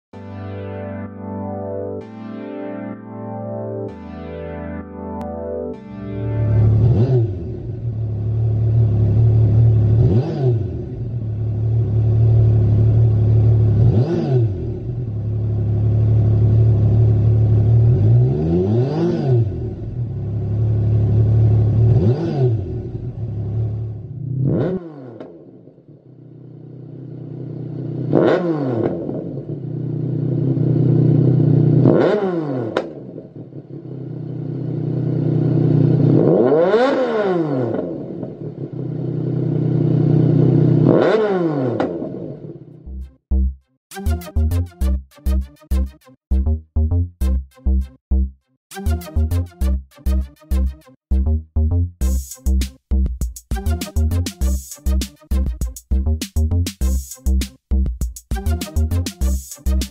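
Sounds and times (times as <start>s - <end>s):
motorcycle engine revving: 6.7s - 43.0s.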